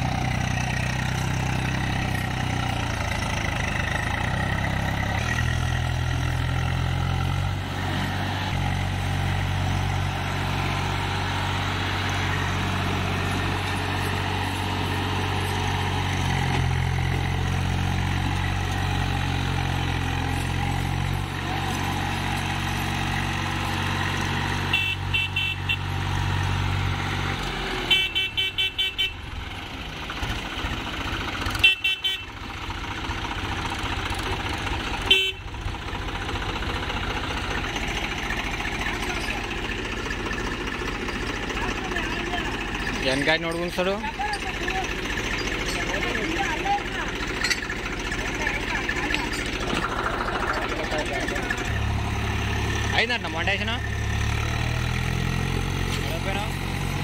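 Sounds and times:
tractor diesel engine under load: 0.0 - 57.0
horn bursts: 24.7 - 25.9, 27.8 - 29.2, 31.6 - 32.4, 35.0 - 35.5.

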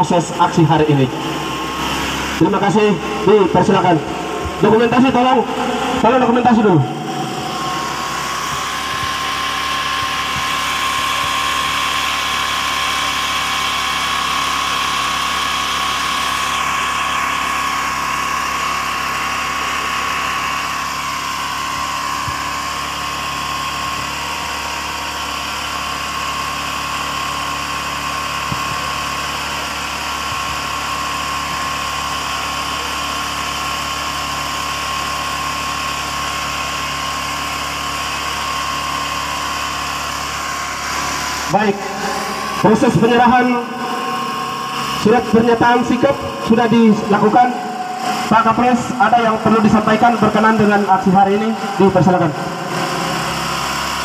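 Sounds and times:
engine running: 0.0 - 54.0.

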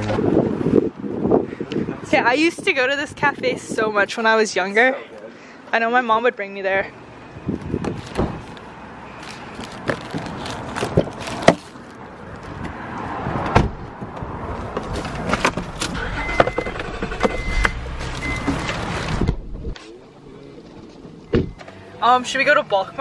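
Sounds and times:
car door and interior knocks: 13.5 - 13.8, 21.3 - 21.6
short high beep: 16.2 - 18.6
low rumble: 16.2 - 20.4.

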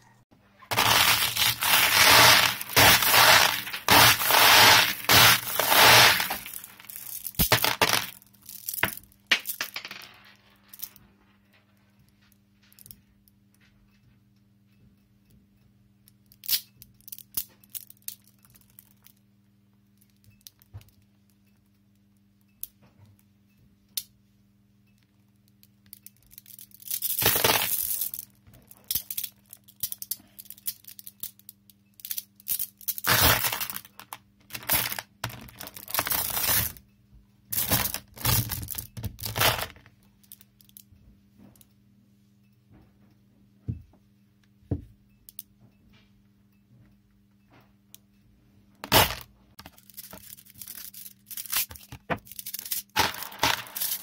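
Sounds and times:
balls dropping into plastic basket: 0.7 - 10.9, 27.0 - 28.2, 51.6 - 54.0
steel balls clicking and rattling: 0.7 - 11.0, 16.2 - 19.2, 25.0 - 36.9, 37.5 - 41.0, 49.5 - 54.0.

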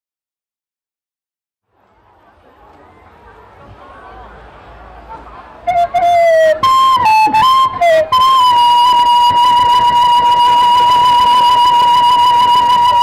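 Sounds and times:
free-reed bamboo pipe playing: 5.7 - 13.0.

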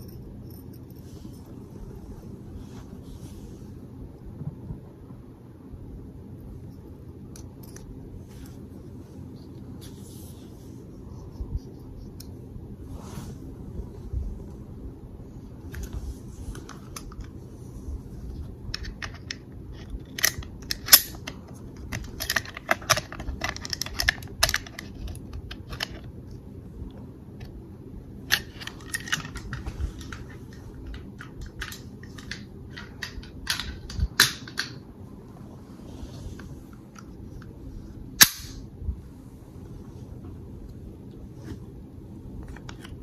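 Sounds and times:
metal clicks of pistol parts: 20.0 - 21.3.

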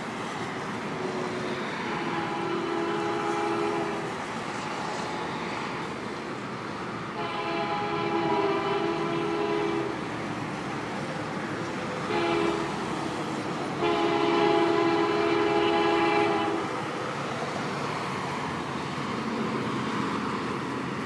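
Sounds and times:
locomotive air horn blasts: 1.0 - 4.3, 7.1 - 10.1, 12.0 - 13.0, 13.7 - 16.8.

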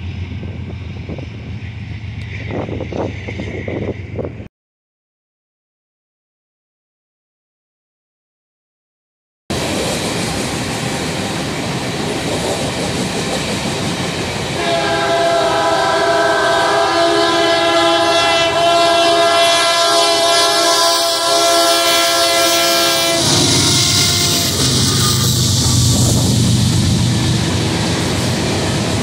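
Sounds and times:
locomotive air horn chord: 14.6 - 26.3.

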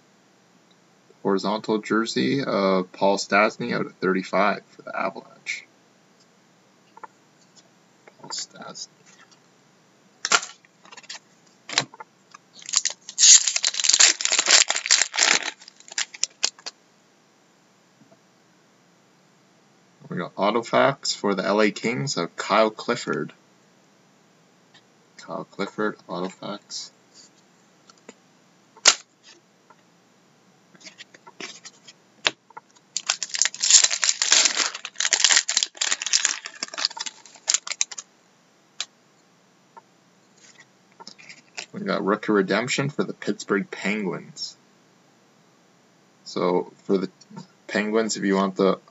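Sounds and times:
wrapper tearing and crinkling: 10.3 - 11.2, 12.6 - 16.7, 28.8 - 29.1, 33.0 - 38.0.

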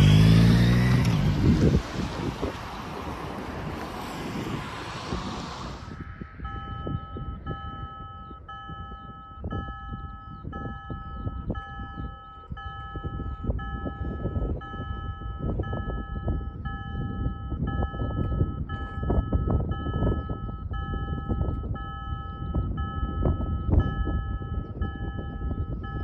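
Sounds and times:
cars driving past: 0.0 - 7.0
level crossing warning bells: 5.9 - 26.0.

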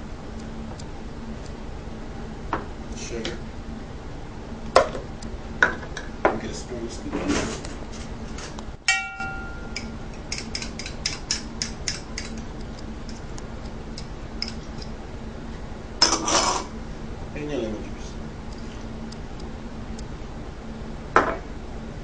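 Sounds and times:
rustling scrape: 7.1 - 8.6
utensils clicking and tapping: 8.9 - 14.9.

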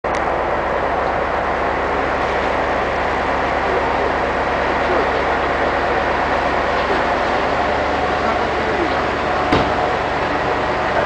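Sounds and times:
heavy machinery engine running: 0.0 - 11.0.

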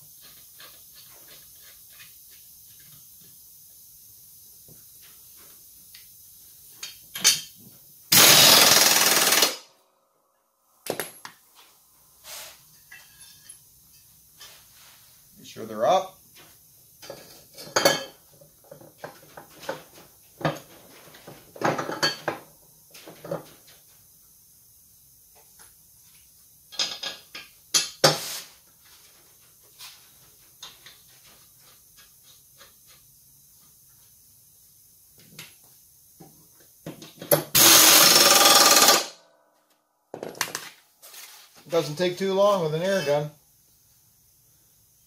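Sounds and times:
pneumatic impact wrench hammering: 8.1 - 9.7, 37.2 - 39.2.

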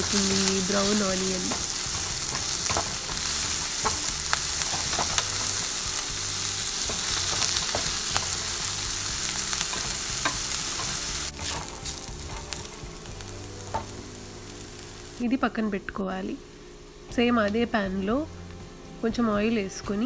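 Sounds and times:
onions sizzling in a pan: 0.0 - 16.2
spatula scraping a pan: 0.7 - 12.8.

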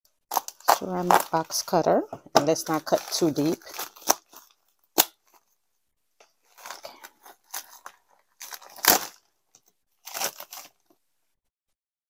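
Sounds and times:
bubble wrap crinkling: 0.2 - 5.6, 6.2 - 11.0
plastic envelope tearing: 0.3 - 1.8, 2.4 - 5.5, 6.5 - 11.0.

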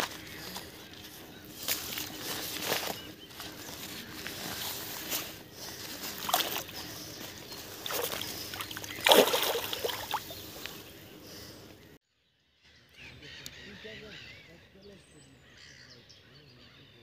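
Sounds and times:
fish splashing in water: 0.0 - 10.9
water sloshing: 0.0 - 11.1.

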